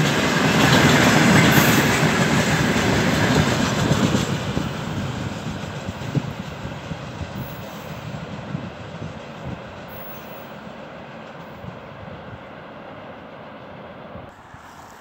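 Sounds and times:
train wheels rumbling over rail joints: 0.0 - 13.7.

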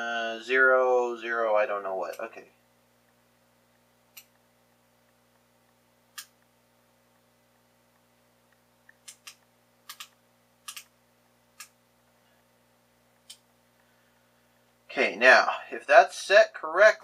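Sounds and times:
lock dials clicking: 8.9 - 10.9.

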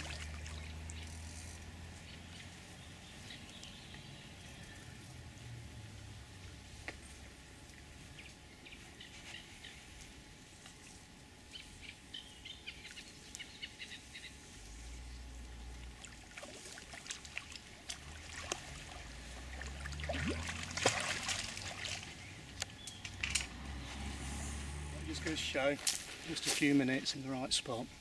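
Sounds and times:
fish thrashing and splashing water: 0.0 - 1.3, 15.9 - 22.3.

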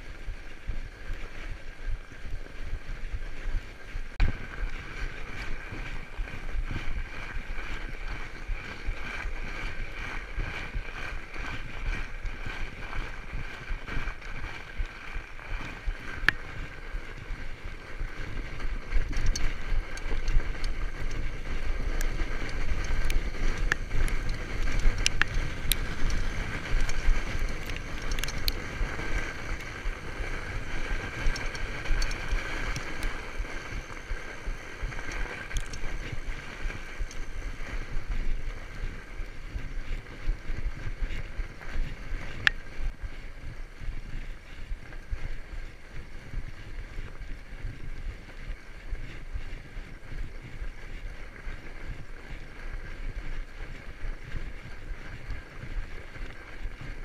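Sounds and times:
bike tyres on snow: 0.0 - 57.0
wind rumble on microphone: 0.0 - 57.0.

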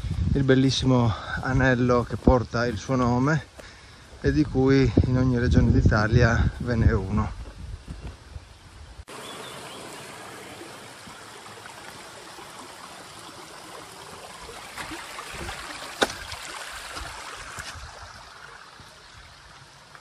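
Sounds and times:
mountain stream rushing: 9.0 - 20.0.

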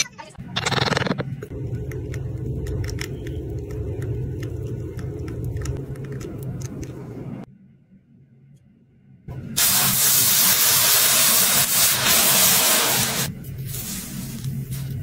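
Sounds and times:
molten metal pouring rumble: 1.5 - 7.5.

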